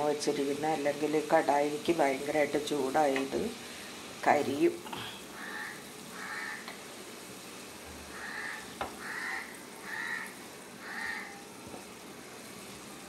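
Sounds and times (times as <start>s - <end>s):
crow cawing: 5.4s - 6.7s, 8.1s - 11.4s.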